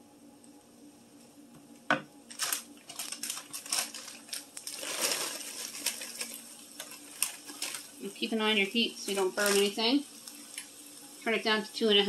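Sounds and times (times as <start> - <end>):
frozen vegetables pouring into pan: 2.3 - 8.2, 9.0 - 10.7
plastic bag crinkling: 2.3 - 8.2, 9.1 - 10.7.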